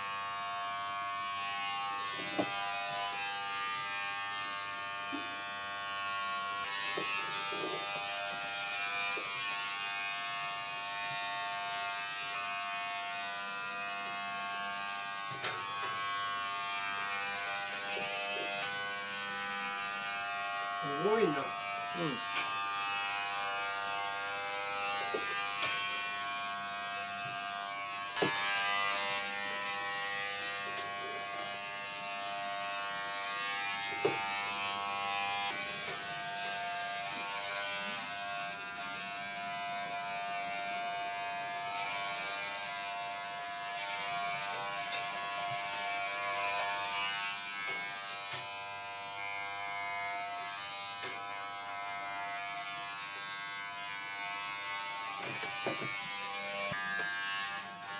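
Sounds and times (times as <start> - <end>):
electric pet clipper buzzing: 0.0 - 57.9.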